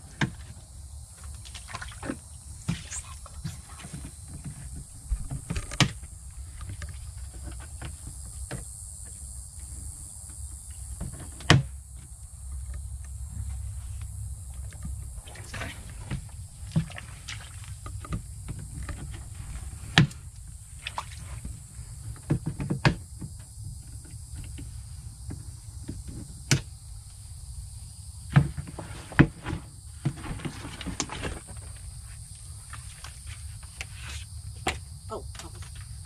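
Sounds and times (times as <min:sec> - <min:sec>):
high insect drone: 0:00.0 - 0:36.0
knocks and clunks: 0:02.0 - 0:09.2.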